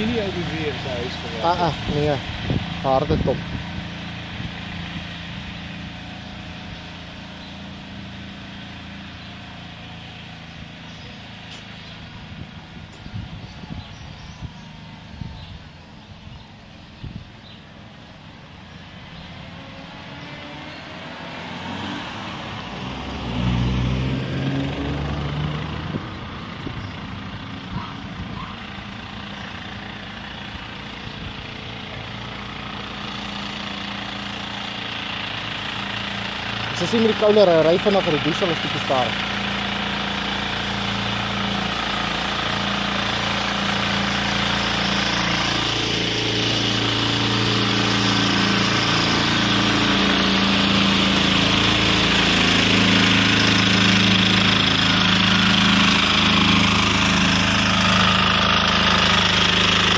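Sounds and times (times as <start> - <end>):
garden tractor engine running: 0.0 - 59.9
car driving past: 19.0 - 26.4.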